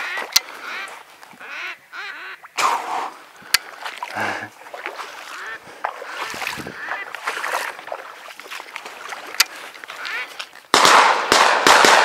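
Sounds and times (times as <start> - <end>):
ducks quacking: 0.0 - 10.6
sharp cracks: 10.7 - 12.0.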